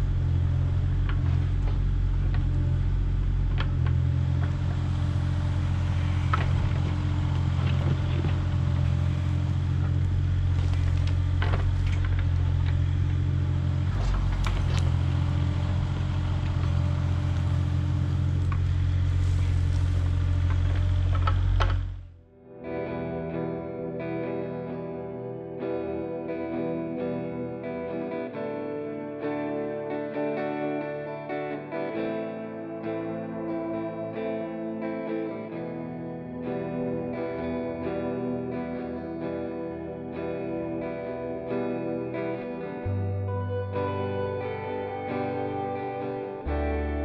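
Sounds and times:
excavator engine running: 0:00.0 - 0:22.2
bucket scraping dirt and stones: 0:18.6 - 0:21.0.

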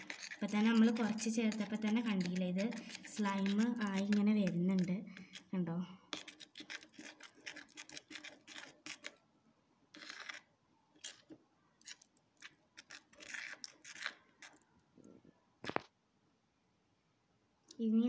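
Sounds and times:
utensil scraping metal bowl: 0:00.0 - 0:09.2, 0:09.9 - 0:14.6.

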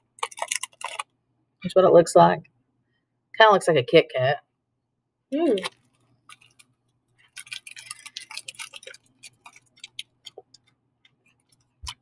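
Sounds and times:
crunching wafer bar being chewed: 0:00.2 - 0:01.1, 0:05.6 - 0:12.0.

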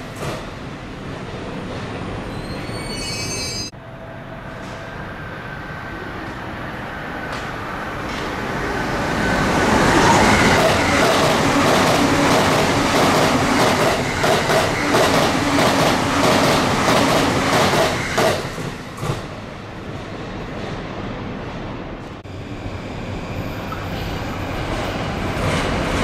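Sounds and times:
train wheels clacking over rail joints: 0:10.6 - 0:19.2.

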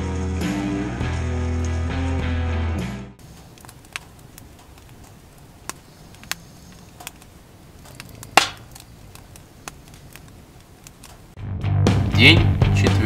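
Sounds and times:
loud crack: 0:03.2 - 0:11.4
sharp pops and clicks: 0:03.2 - 0:11.4.

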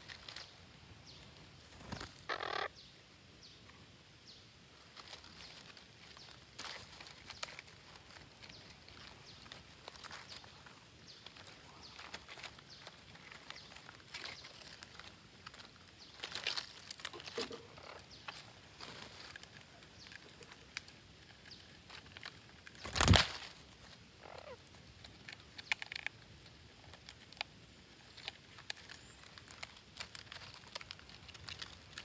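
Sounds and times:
birds rustling in dry leaves: 0:00.0 - 0:32.0
parakeet calls: 0:02.3 - 0:02.8, 0:24.2 - 0:24.6.

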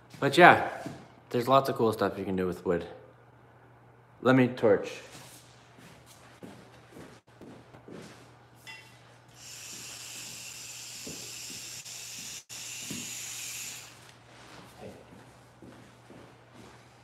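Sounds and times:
propane torch hissing: 0:09.4 - 0:14.0.

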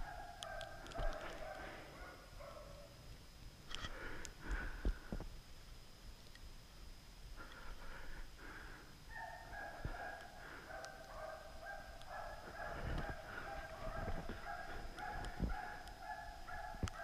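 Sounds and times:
hunting dogs baying: 0:00.0 - 0:02.9, 0:09.1 - 0:17.0.

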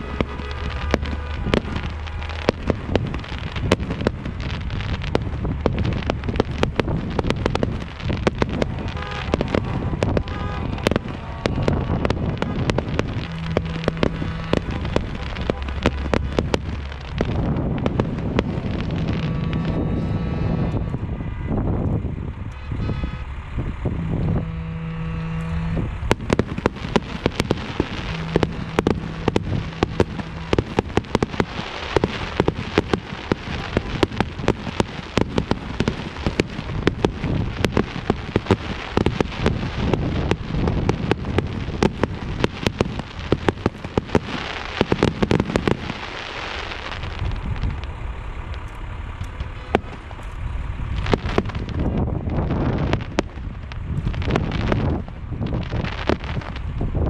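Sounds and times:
car horn honking: 0:00.0 - 0:03.0, 0:08.4 - 0:17.5, 0:18.2 - 0:41.1
fireworks crackling pops: 0:00.0 - 0:23.3, 0:23.9 - 0:57.0.

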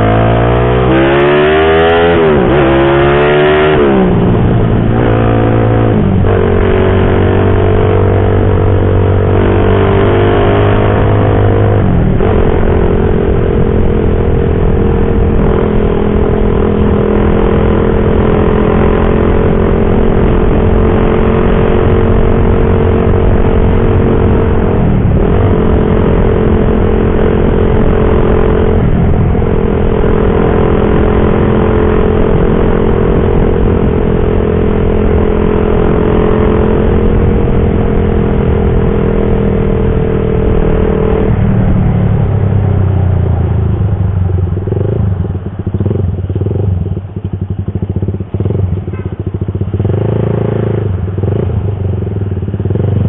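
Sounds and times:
motorcycle engine running: 0:00.0 - 0:53.0.

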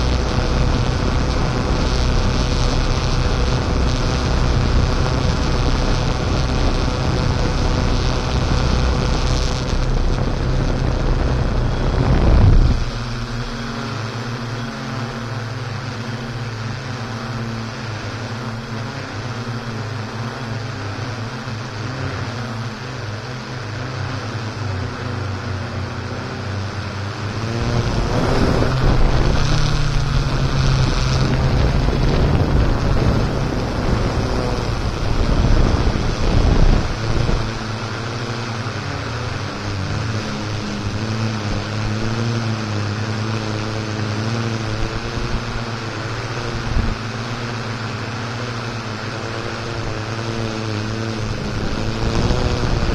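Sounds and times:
wind buffeting microphone: 0:00.0 - 0:15.6, 0:27.0 - 0:47.8, 0:49.2 - 0:52.9
drone propellers humming: 0:00.0 - 0:52.9.

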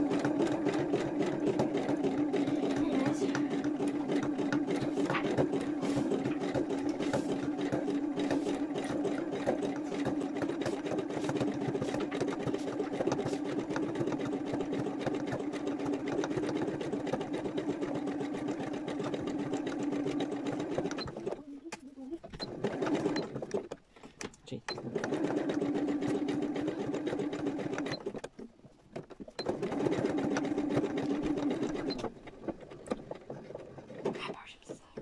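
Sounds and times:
sewing machine running: 0:00.0 - 0:35.0.

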